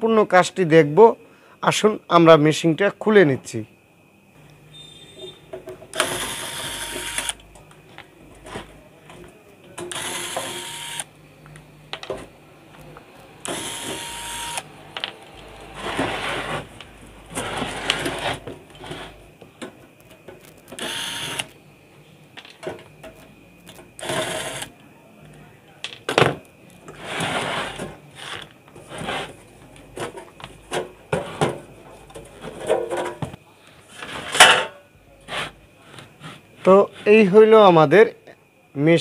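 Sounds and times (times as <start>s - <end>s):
electric screwdriver running: 6.0s - 7.4s, 9.9s - 11.1s, 13.4s - 14.7s, 20.8s - 21.5s.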